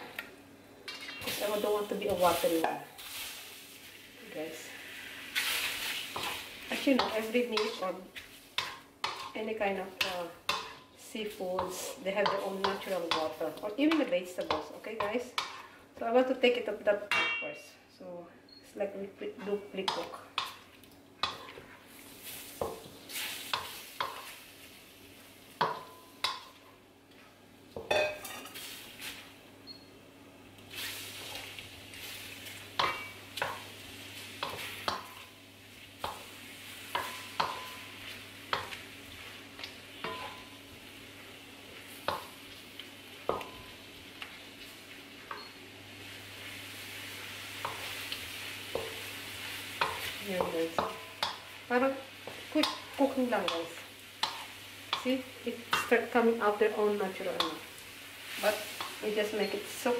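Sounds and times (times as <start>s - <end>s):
prawns sizzling in a hot pan: 0.9s - 17.3s, 19.1s - 29.4s, 30.5s - 59.9s
spatula tapping and scraping pan: 6.1s - 9.4s, 10.0s - 10.9s, 11.5s - 15.7s, 19.5s - 21.8s, 22.6s - 24.3s, 25.6s - 26.6s, 27.8s - 28.5s, 32.5s - 33.7s, 34.4s - 35.3s, 36.9s - 38.9s, 39.6s - 40.6s, 41.8s - 44.4s, 45.3s - 45.6s, 47.6s - 49.0s, 49.8s - 51.5s, 52.2s - 56.0s, 57.3s - 57.6s.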